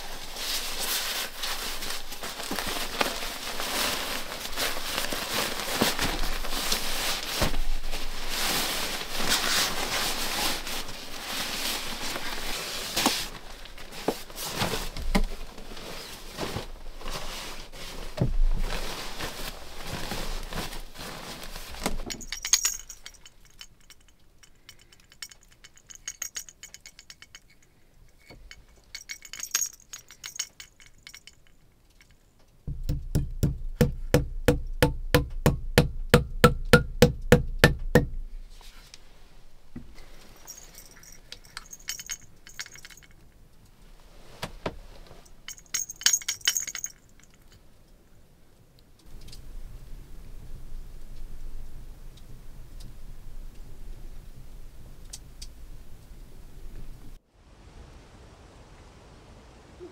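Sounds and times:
sleeping bag rustling: 0.0 - 31.6, 38.3 - 43.3, 43.9 - 47.5
small chinking sounds: 22.0 - 38.3, 39.9 - 43.8, 45.3 - 48.0.

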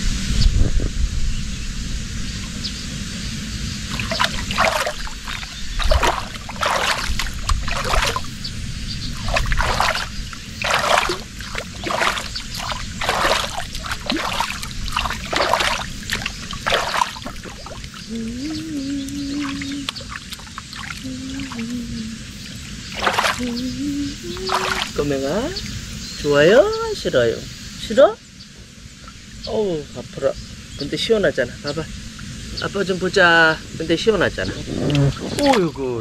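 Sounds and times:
water splashing: 3.8 - 25.8.

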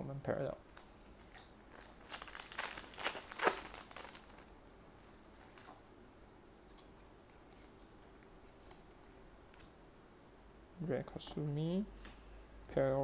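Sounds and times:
wrapper tearing and crinkling: 1.2 - 4.5.

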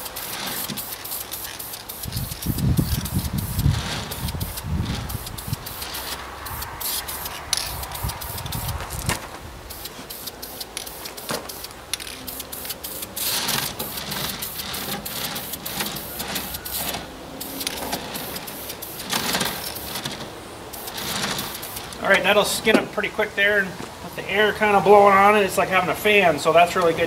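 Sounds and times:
spray paint can hissing: 0.0 - 9.1, 9.7 - 22.0.

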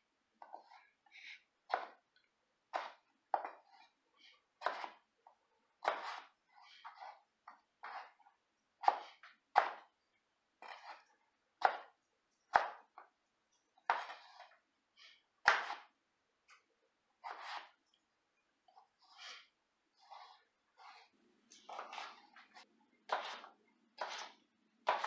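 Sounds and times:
knife chopping on plastic board: 1.7 - 2.0, 2.7 - 3.8, 4.6 - 5.0, 5.8 - 8.2, 8.8 - 9.9, 11.6 - 13.1, 13.9 - 14.5, 15.4 - 15.9, 17.2 - 17.7, 21.7 - 25.0.

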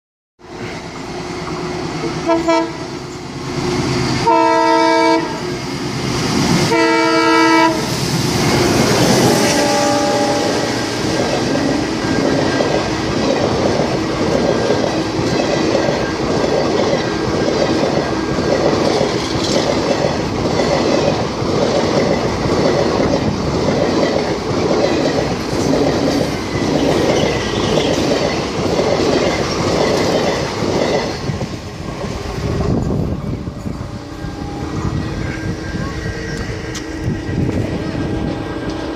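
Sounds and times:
train horn blasts: 2.2 - 2.9, 4.2 - 5.5, 6.7 - 7.9, 8.5 - 11.1
train wheels clickety-clack: 10.9 - 33.8.

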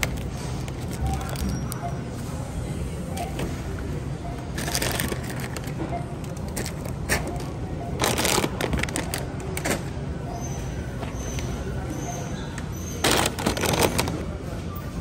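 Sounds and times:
grocery bags crinkling: 0.0 - 2.0, 4.6 - 7.4, 8.0 - 9.9, 13.0 - 14.4.

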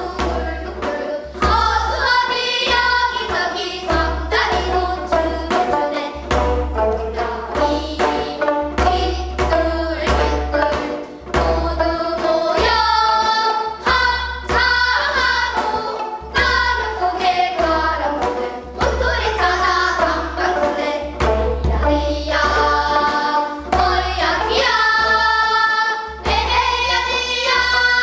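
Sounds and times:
girls singing together: 0.0 - 28.0
plucked zithers: 0.0 - 28.0.

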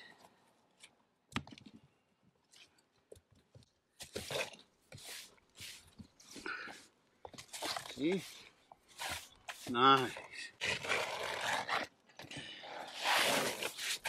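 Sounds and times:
shovel scraping debris: 12.9 - 14.0.

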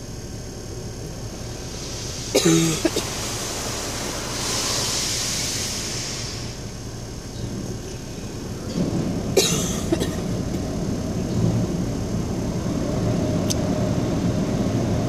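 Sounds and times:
water spray hissing against car: 1.4 - 6.8.

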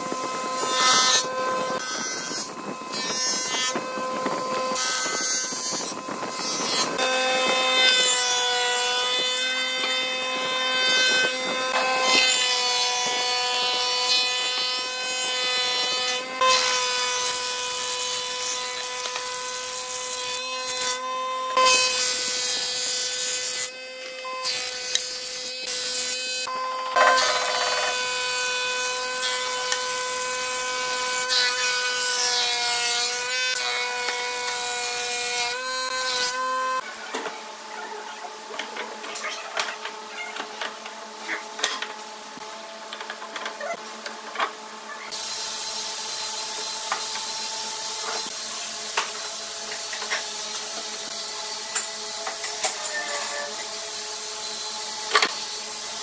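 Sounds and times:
planer cutterhead whine: 0.0 - 37.7.

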